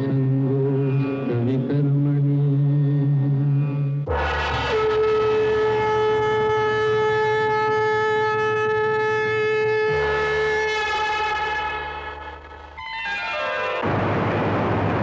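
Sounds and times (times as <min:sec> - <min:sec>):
long held horn-like note: 0:04.1 - 0:12.6.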